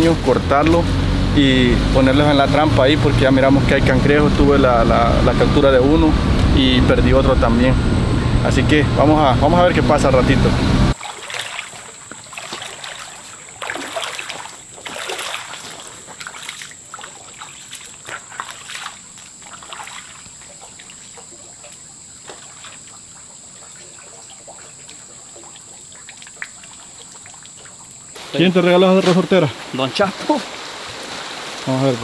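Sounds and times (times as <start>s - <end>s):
feet splashing through water: 10.9s - 32.0s
stream trickling: 10.9s - 32.0s.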